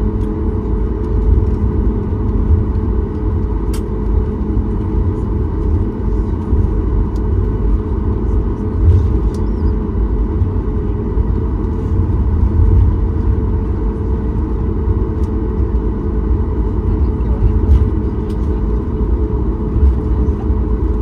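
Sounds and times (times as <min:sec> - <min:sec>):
jet engines deep rumble: 0:00.0 - 0:21.0.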